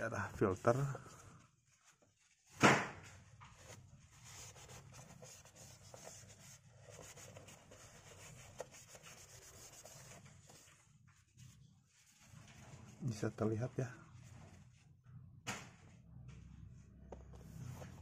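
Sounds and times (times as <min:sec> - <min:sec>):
tissue rubbing inside plastic housing: 0:00.0 - 0:14.9
sharp thump: 0:02.6 - 0:03.0.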